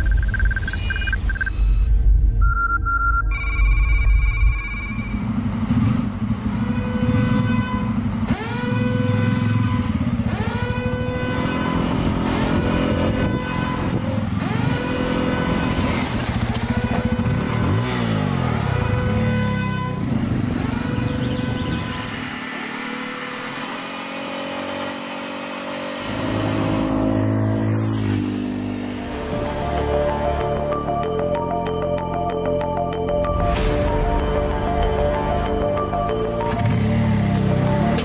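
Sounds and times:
motorcycle engine revving: 5.1 - 30.3, 36.4 - 38.0
music: 29.0 - 38.0.

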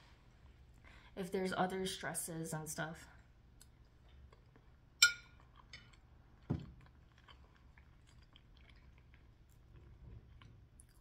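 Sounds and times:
soft chewing: 3.2 - 11.0
fork clinking on ceramic plate: 5.0 - 5.4.

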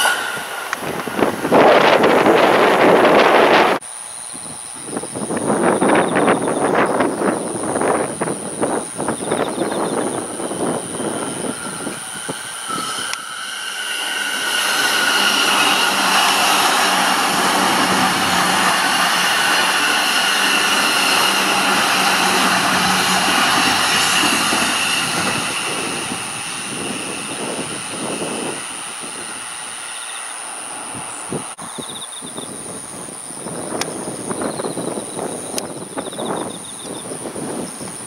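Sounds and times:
electric train passing: 0.0 - 4.2, 5.0 - 38.0
wind buffeting microphone: 0.0 - 30.0, 30.6 - 38.0.

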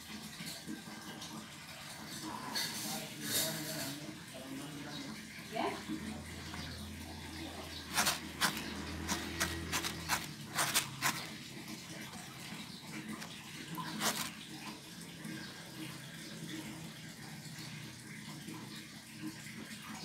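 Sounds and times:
fingers rustling through rice: 7.7 - 11.5, 13.1 - 14.5.

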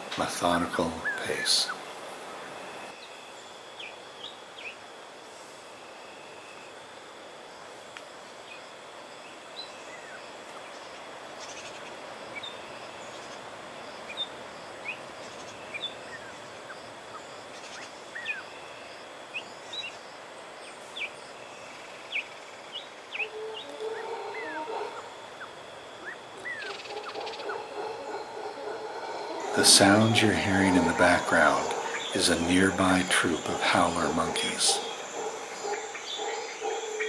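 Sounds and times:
howler monkeys roaring: 23.1 - 37.0
thin high tone: 29.3 - 35.0.

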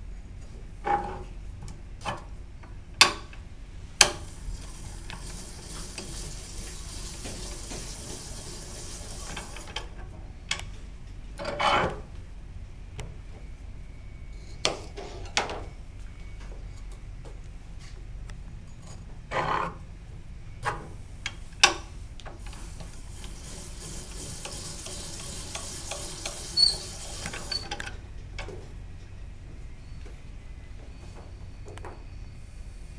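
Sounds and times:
hissing scrape of spiral cutter: 22.4 - 27.7.

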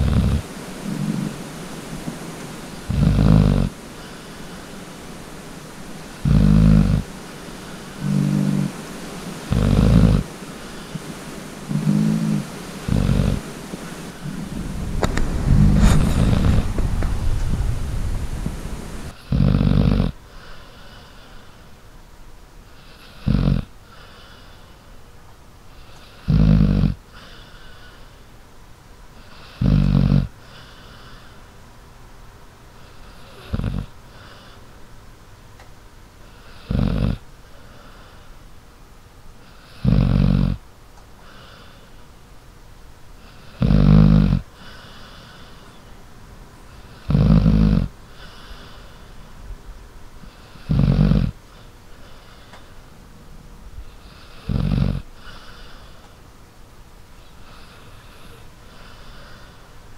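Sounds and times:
dog snoring: 0.0 - 1.4, 2.7 - 4.7, 6.1 - 8.8, 9.4 - 11.0, 11.6 - 13.5, 14.1 - 17.6, 18.4 - 21.5, 22.7 - 24.6, 25.8 - 28.0, 29.2 - 31.3, 32.8 - 34.6, 36.2 - 38.2, 39.4 - 40.6, 43.2 - 45.7, 46.7 - 49.0, 50.2 - 52.5, 53.9 - 56.0, 57.4 - 59.5
dog breathing: 0.0 - 5.2, 6.0 - 21.7, 43.2 - 45.8, 46.7 - 49.3, 50.2 - 52.8, 53.9 - 56.2, 57.2 - 59.7.

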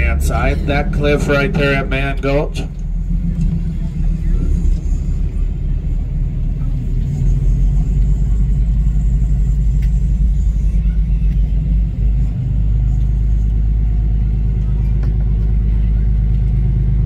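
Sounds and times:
boat engine rumbling: 0.0 - 17.0.

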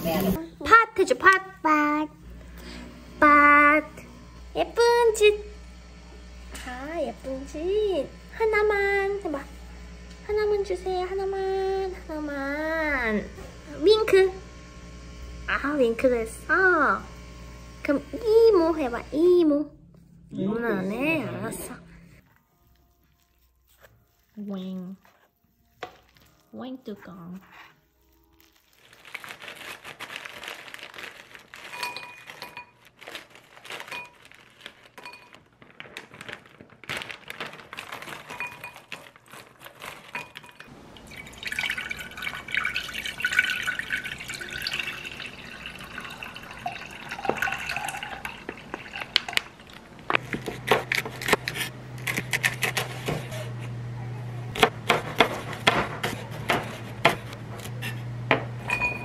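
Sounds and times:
broth pouring into a pot: 40.5 - 49.8
knife chopping on cutting board: 50.1 - 53.6, 54.6 - 58.6.

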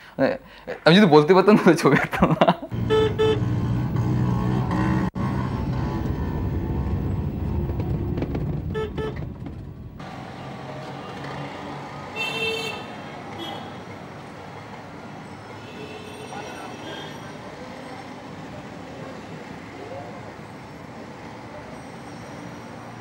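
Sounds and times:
street ambience: 0.0 - 23.0
car engine and road rumble: 2.7 - 11.8
vehicle horn tooting: 2.8 - 3.6, 8.7 - 9.2, 12.2 - 13.8, 15.6 - 17.3.

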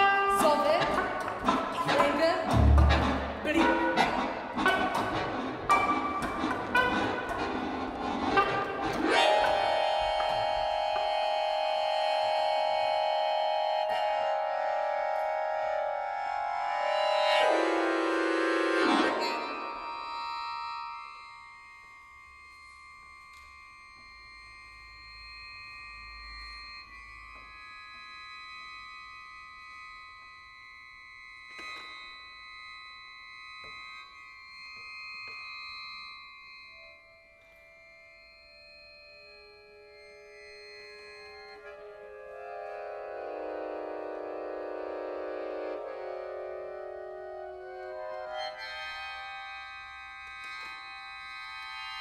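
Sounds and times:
accordion playing chords: 0.0 - 24.4, 36.8 - 52.0.

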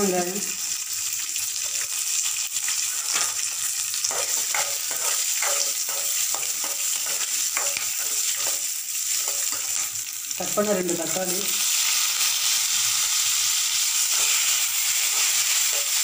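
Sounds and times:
spices sizzling in oil: 0.0 - 16.0
metal spoon scraping pan: 2.8 - 10.0, 14.1 - 16.0.

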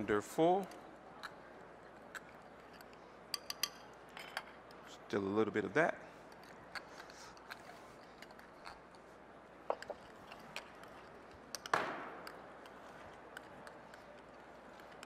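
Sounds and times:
utensils clinking on dishes: 2.6 - 4.7.

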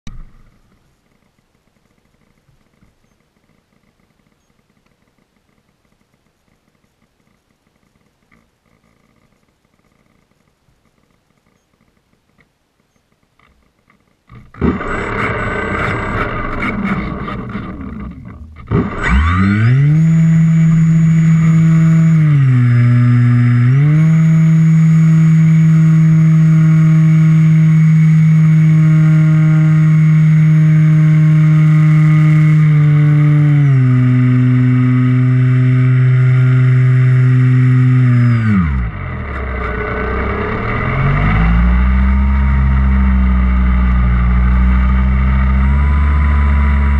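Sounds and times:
electric motor and propeller hum: 13.4 - 46.9.

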